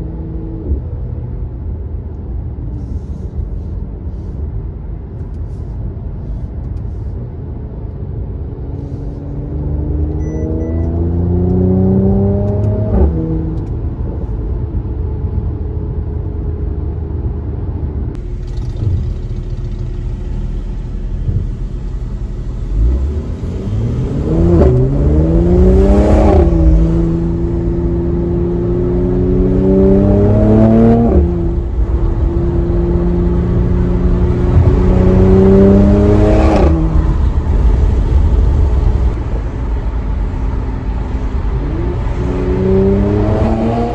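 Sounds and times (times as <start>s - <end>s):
car engine accelerating through gears: 8.6s - 13.8s, 18.1s - 43.9s.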